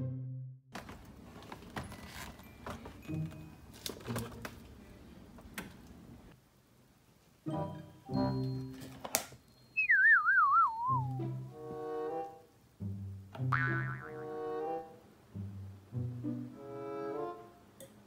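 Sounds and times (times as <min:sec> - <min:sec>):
background music: 0:00.0 - 0:00.6, 0:07.4 - 0:09.0, 0:10.7 - 0:17.7
steady background noise: 0:00.8 - 0:08.1.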